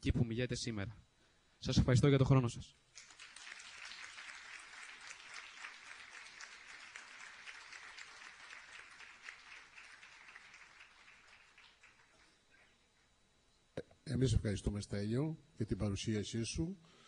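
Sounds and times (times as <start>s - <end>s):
audience applauding: 2.9s - 12.4s.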